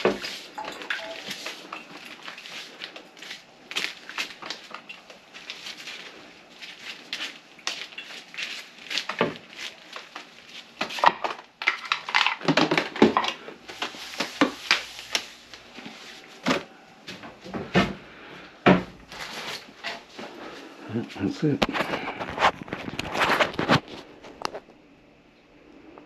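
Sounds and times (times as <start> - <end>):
knocks and clicks of objects handled: 8.9 - 18.0.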